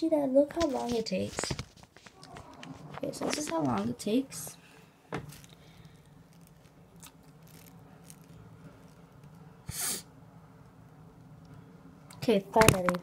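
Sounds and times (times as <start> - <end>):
faint low hum: 0.0 - 13.0
burst of hiss: 9.7 - 10.0.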